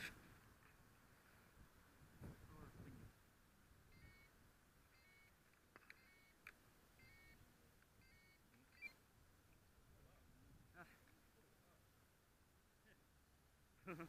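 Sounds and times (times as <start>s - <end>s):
short electronic beeps: 7.0s - 7.4s, 8.0s - 9.0s.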